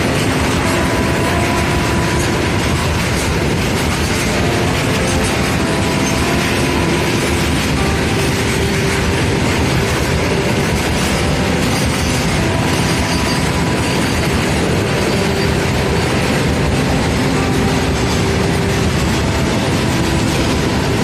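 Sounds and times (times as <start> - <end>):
faint steady tones: 0.0 - 21.0
train wheels on rails: 0.0 - 21.0.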